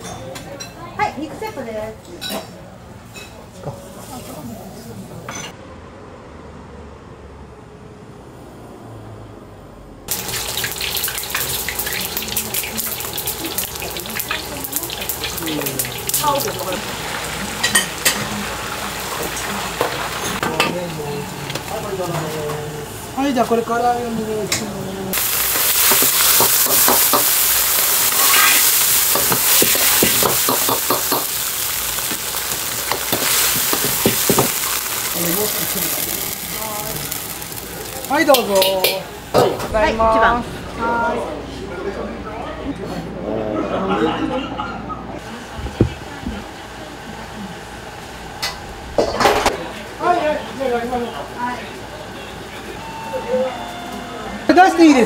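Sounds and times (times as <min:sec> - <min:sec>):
meat deep-frying in hot oil: 0:10.1 - 0:23.6, 0:25.1 - 0:39.2
food sizzling in a wok: 0:10.1 - 0:39.9
metal ladle scraping a wok: 0:28.1 - 0:30.0.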